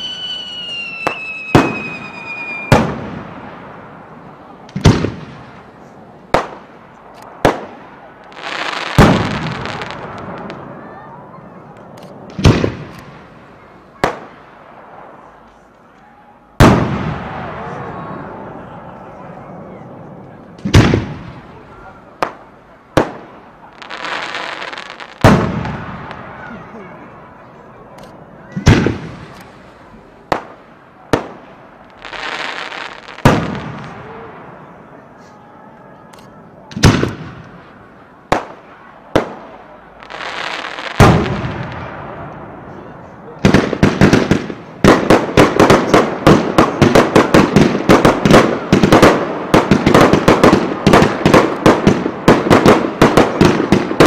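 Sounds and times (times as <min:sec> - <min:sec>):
firework shells booming: 0:00.0 - 0:04.1, 0:04.7 - 0:05.7, 0:06.3 - 0:10.6, 0:11.8 - 0:15.3, 0:16.6 - 0:17.8, 0:20.6 - 0:26.6, 0:28.5 - 0:34.6, 0:36.7 - 0:42.6, 0:43.4 - 0:54.0.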